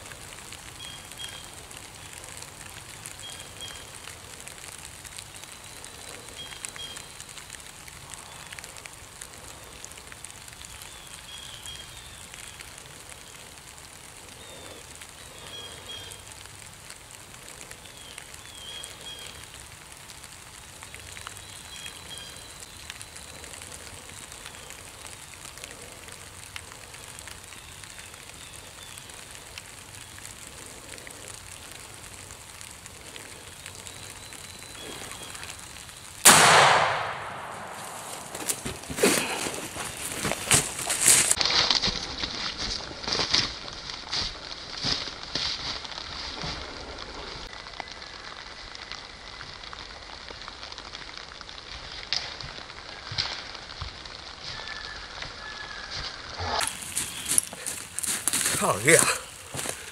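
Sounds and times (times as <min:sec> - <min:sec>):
faint steady hiss: 0:00.0 - 0:41.4
loud shotgun blast: 0:36.2 - 0:38.3.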